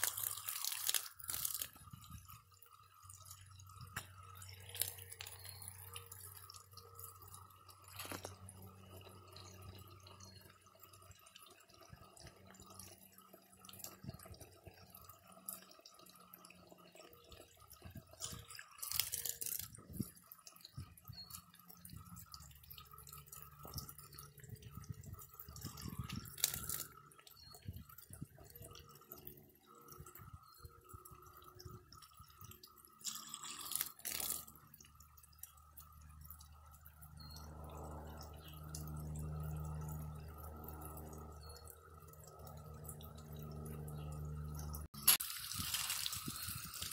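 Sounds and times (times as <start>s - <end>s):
water spraying from hose nozzle: 0.0s - 2.4s, 18.2s - 20.3s, 25.6s - 27.0s, 33.0s - 34.7s, 45.0s - 46.9s.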